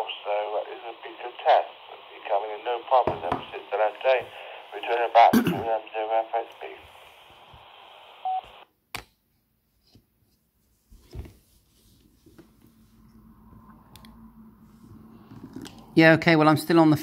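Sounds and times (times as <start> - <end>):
radio speaker hiss: 0.0 - 8.7.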